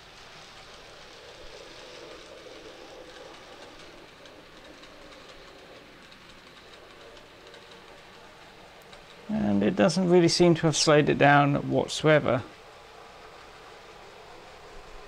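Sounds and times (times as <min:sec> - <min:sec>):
model train motor whir: 0:00.0 - 0:15.0
light clicking from track: 0:00.2 - 0:10.9.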